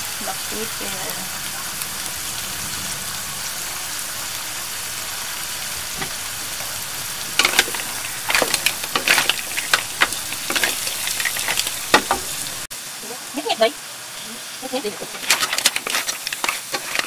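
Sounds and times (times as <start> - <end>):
mussels sizzling in a pan: 0.0 - 17.0
shells clacking against pan: 7.4 - 12.4, 15.0 - 17.0.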